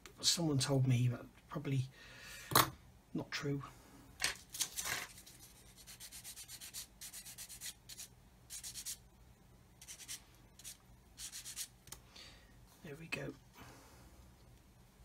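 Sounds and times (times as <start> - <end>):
sanding stick rubbing plastic: 5.1 - 9.0, 9.8 - 11.7.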